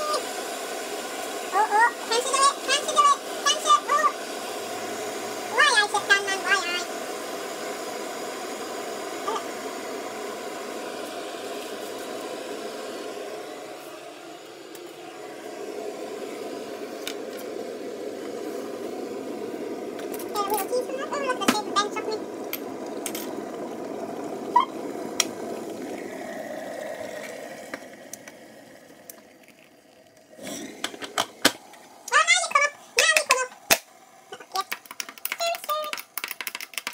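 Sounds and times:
electric kettle heating water: 0.0 - 36.9.

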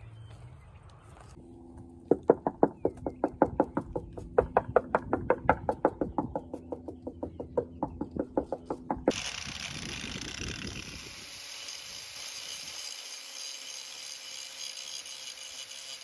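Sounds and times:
knuckle knocks on boat hull: 2.1 - 9.1
angle grinder sanding: 9.1 - 16.0.

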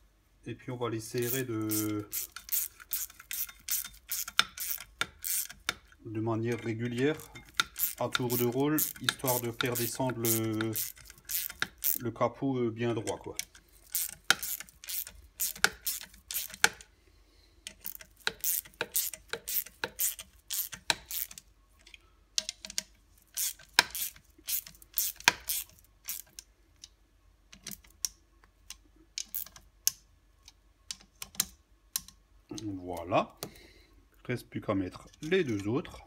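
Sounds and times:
screws being tightened clicking: 1.2 - 5.9, 6.5 - 12.0, 13.4 - 16.8, 17.6 - 21.4, 22.4 - 26.4.

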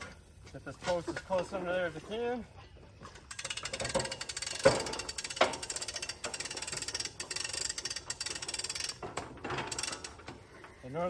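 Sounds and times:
ratcheting winch clicks: 3.0 - 11.0
metal knocks: 3.7 - 5.8.

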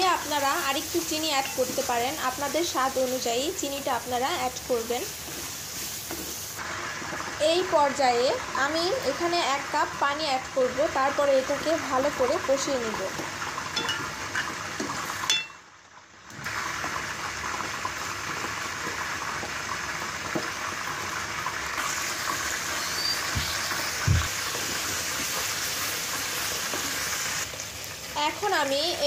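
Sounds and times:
wooden spoon stirring water in wok: 0.0 - 9.3.

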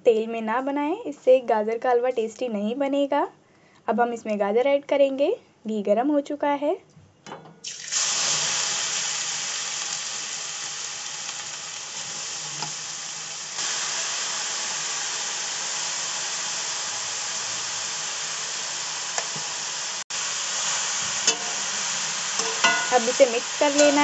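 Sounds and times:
carrots sizzling in hot oil: 7.6 - 24.0.

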